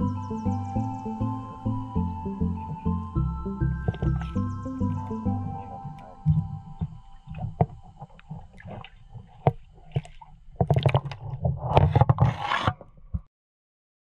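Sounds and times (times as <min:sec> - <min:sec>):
water sloshing and splashing: 0:03.8 - 0:12.7.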